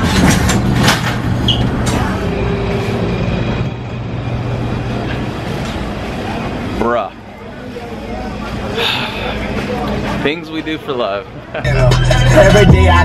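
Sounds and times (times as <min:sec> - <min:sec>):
busy market hall hum: 0:00.0 - 0:13.0.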